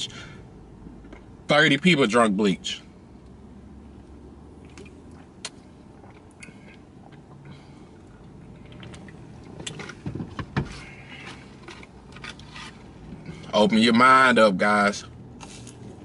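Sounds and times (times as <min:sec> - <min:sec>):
low steady hum: 0:00.0 - 0:16.0
knocks and rustling from handling: 0:09.6 - 0:13.4.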